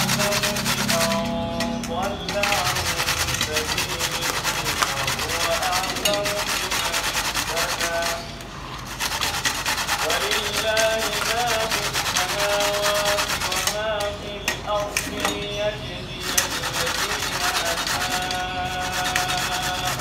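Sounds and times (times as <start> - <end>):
beetroot rasping on metal grater: 0.0 - 14.2, 16.2 - 20.0.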